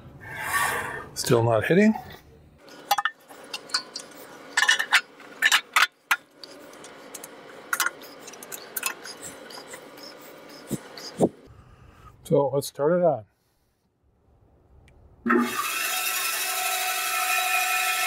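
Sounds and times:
steady low hum: 0:00.0 - 0:15.2.

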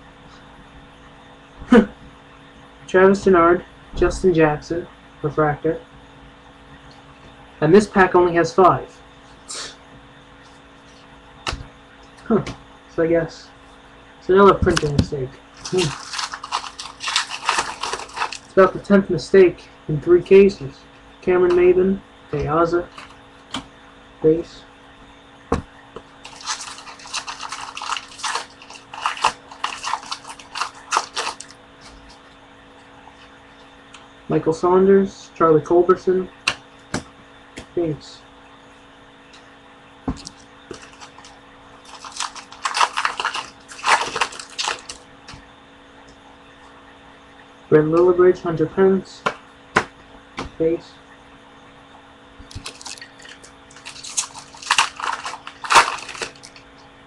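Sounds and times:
wrapper tearing and crinkling: 0:15.6 - 0:18.6, 0:26.2 - 0:31.6, 0:40.2 - 0:45.0, 0:52.5 - 0:56.6.

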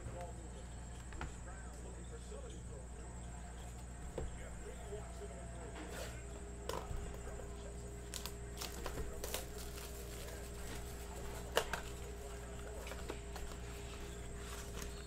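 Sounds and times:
faint steady hum: 0:00.0 - 0:15.0
rustles and clicks: 0:05.7 - 0:15.0.

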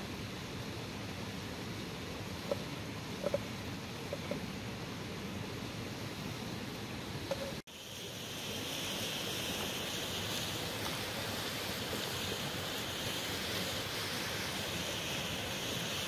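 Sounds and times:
river rushing: 0:06.0 - 0:16.0
food sizzling in pan: 0:07.4 - 0:16.0.

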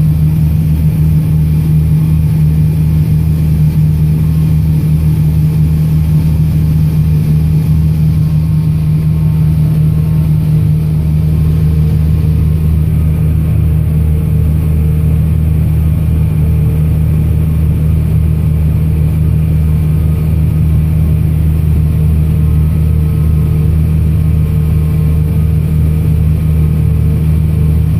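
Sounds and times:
tractor engine drone in cab: 0:00.0 - 0:27.9.

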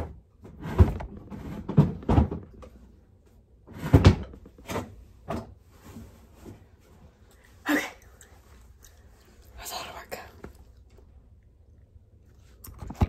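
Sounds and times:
drawers bumping and knocking: 0:00.0 - 0:02.7, 0:03.7 - 0:05.6
shuffling noise: 0:05.6 - 0:07.6.

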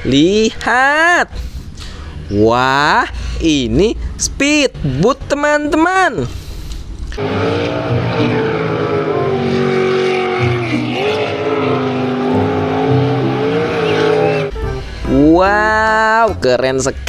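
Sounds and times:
boat engine revving hard: 0:07.2 - 0:14.8.

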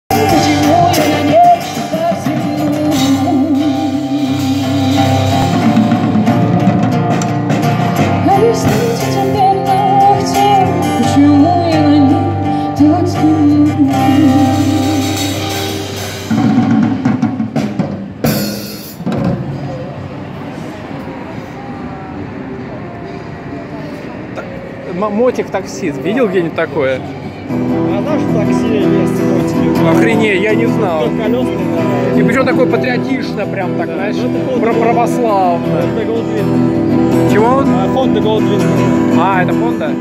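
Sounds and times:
street noise: 0:00.0 - 0:40.0
woman singing: 0:00.1 - 0:05.8, 0:08.2 - 0:15.6
drum kit: 0:00.1 - 0:11.9, 0:13.4 - 0:19.9
acoustic guitar: 0:00.1 - 0:19.9, 0:27.0 - 0:40.0.

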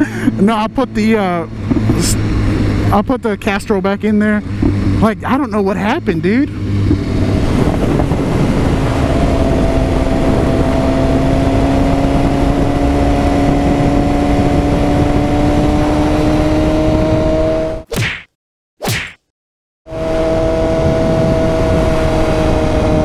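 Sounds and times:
motorcycle engine cruising: 0:00.0 - 0:17.9, 0:19.9 - 0:23.0
wind rush on microphone: 0:06.5 - 0:17.8, 0:20.0 - 0:23.0.

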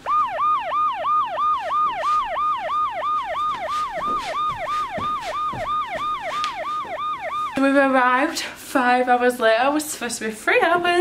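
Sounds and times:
electronic siren wail: 0:00.0 - 0:08.0.

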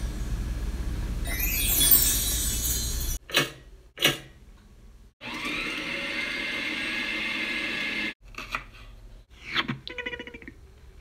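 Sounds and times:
electric stand mixer whirring: 0:05.2 - 0:08.1.

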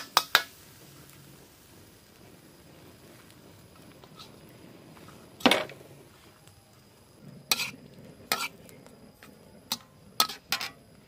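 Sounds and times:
metal spatula scraping wok: 0:04.0 - 0:04.4, 0:07.3 - 0:10.8
wok set down on wooden bench: 0:05.4 - 0:05.8.

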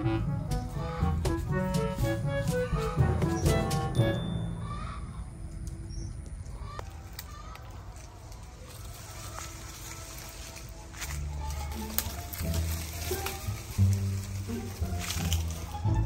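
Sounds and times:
background music: 0:00.0 - 0:06.4, 0:09.4 - 0:16.0
low rumble: 0:02.6 - 0:06.9.

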